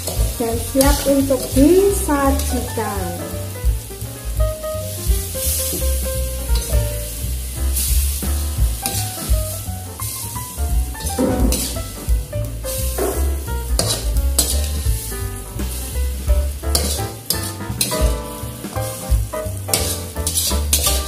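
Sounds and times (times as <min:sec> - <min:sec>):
background music with bass line: 0:00.0 - 0:21.0
food sizzling in a pan: 0:00.0 - 0:21.0
spatula scraping a wok: 0:08.8 - 0:09.1, 0:11.0 - 0:12.1, 0:13.8 - 0:14.9, 0:16.7 - 0:21.0.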